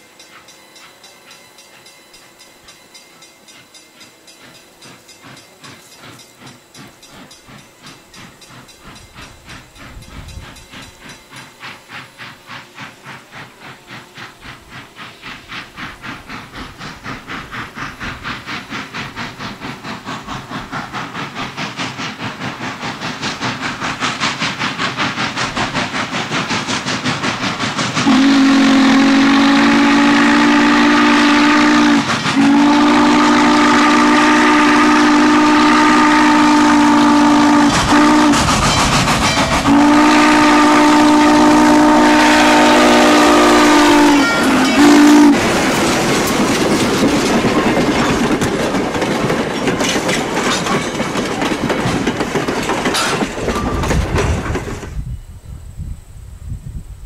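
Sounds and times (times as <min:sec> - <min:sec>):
train wheels clacking over rail joints: 0:00.0 - 0:55.1
steam locomotive exhaust beating: 0:00.0 - 0:57.0
steam whistle blasts: 0:28.0 - 0:45.4.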